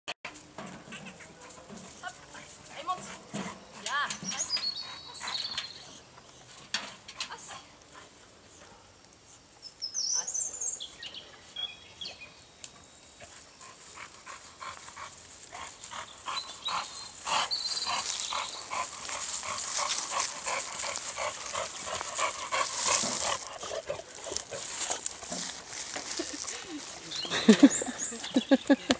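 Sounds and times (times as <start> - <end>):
wheelbarrow rattling over grass: 0.3 - 4.6, 17.8 - 28.9.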